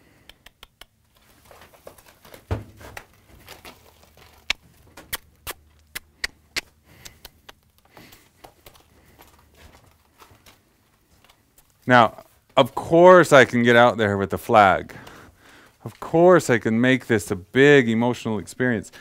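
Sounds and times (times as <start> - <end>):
horse hooves on gravel: 1.1 - 5.4, 7.5 - 12.8.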